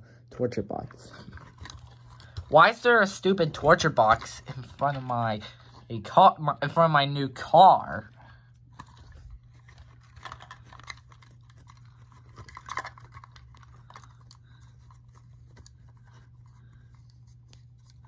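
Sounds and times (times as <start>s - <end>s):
plastic toy bricks rustling on carpet: 8.7s - 16.9s.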